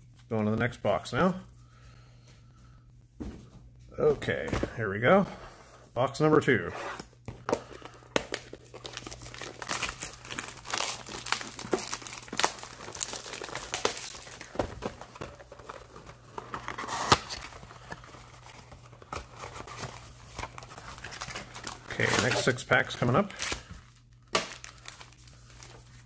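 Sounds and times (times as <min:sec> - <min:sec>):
shrink wrap tearing and crinkling: 0:07.8 - 0:26.0
cardboard box opening: 0:14.4 - 0:22.6.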